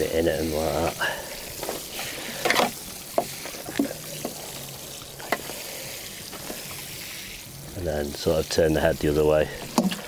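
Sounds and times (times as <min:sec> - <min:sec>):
water spraying from watering can: 0:00.0 - 0:10.0.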